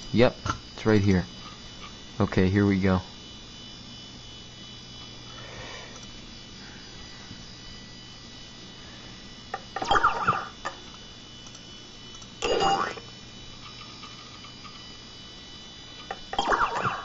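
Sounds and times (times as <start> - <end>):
computer electrical hum: 0.0 - 17.0
faint high tones: 12.4 - 13.1.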